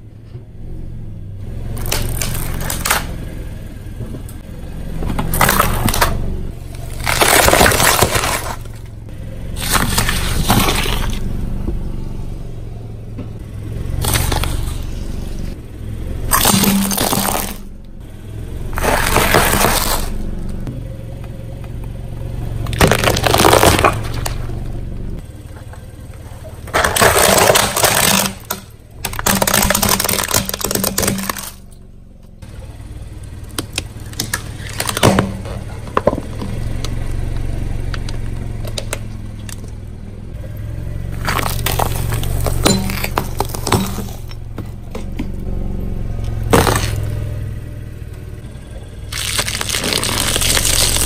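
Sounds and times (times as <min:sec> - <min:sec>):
low steady hum: 0:00.0 - 0:51.0
car tyre crushing snacks and toy: 0:01.4 - 0:11.8, 0:13.4 - 0:31.8, 0:32.5 - 0:47.9, 0:48.9 - 0:51.0.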